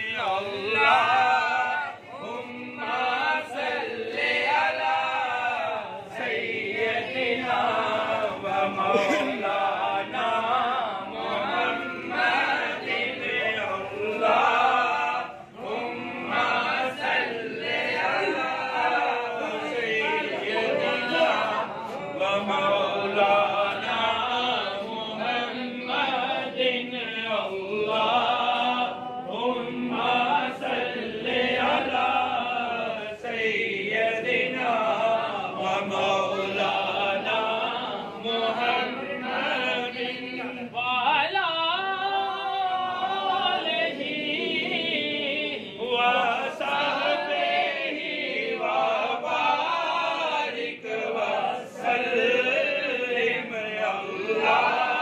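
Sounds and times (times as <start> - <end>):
men chanting together: 0.0 - 55.0.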